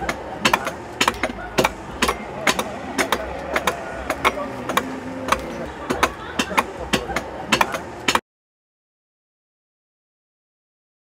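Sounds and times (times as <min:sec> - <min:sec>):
faint voices: 0:00.0 - 0:08.2
sharp strikes: 0:00.0 - 0:08.2.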